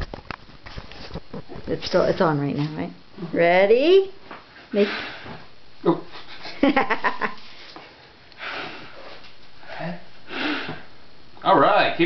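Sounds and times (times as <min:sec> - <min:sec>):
child blowing spluttery puffs: 0:04.7 - 0:05.5, 0:08.4 - 0:10.9.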